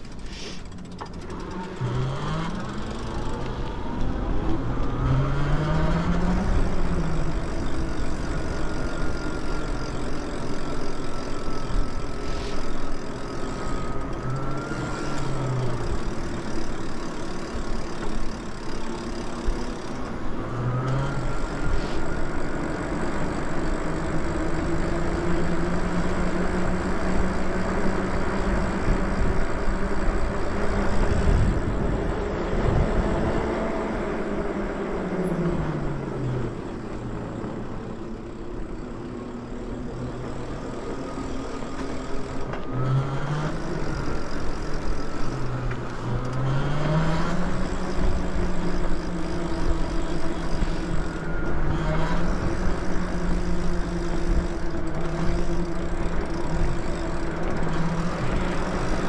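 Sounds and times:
electric bike motor whining: 0.0 - 59.0
wind rush on microphone: 30.8 - 33.7.

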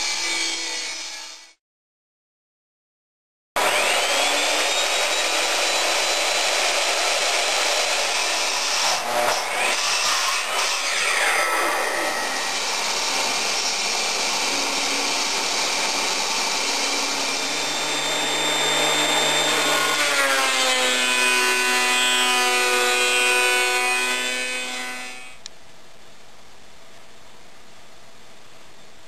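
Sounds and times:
thickness planer running: 12.1 - 23.9
planer winding down: 12.6 - 20.3.

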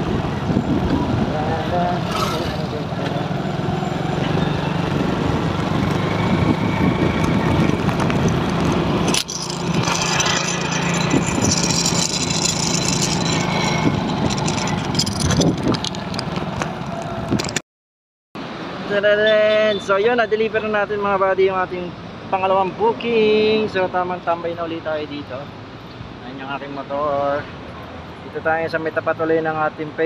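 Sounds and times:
wind noise on microphone: 0.0 - 2.9, 4.4 - 17.6
motorcycle engine running: 1.8 - 17.2.

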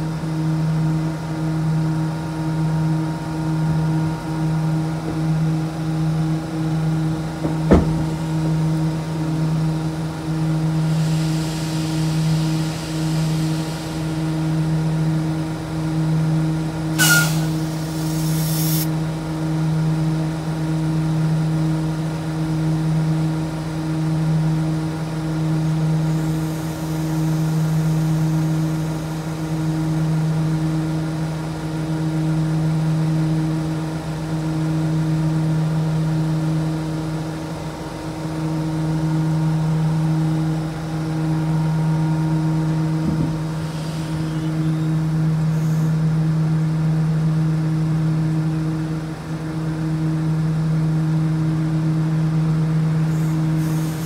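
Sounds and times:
train equipment humming: 0.0 - 54.0
compressed air hiss: 10.6 - 15.0, 17.0 - 18.9, 26.0 - 29.6, 43.5 - 45.9, 53.1 - 54.0.

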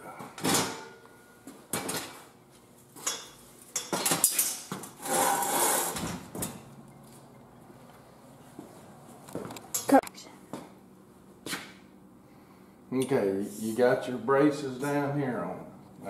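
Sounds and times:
metal ladder frame clanking: 0.4 - 1.0.

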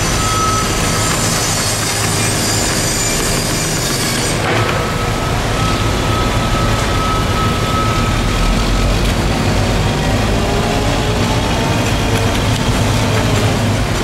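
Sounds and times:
thin high whine: 0.0 - 9.0
heavy machinery engine hum: 0.0 - 14.0.

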